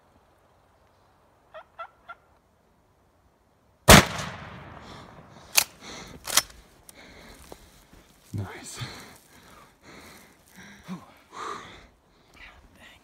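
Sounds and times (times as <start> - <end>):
turkey clucks: 1.5 - 2.3
shotgun blast echoing: 3.9 - 6.4
sharp clicks: 5.4 - 7.0.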